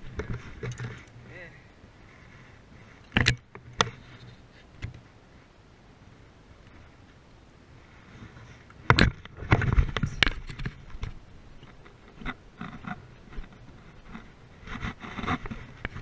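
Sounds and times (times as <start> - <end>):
clicks and scrapes handling fish: 0.0 - 1.2, 2.1 - 5.0, 8.1 - 16.0.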